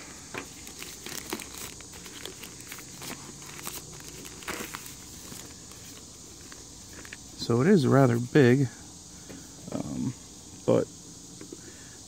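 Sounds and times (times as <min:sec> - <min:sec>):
plastic wrapping crinkling: 0:00.4 - 0:07.2.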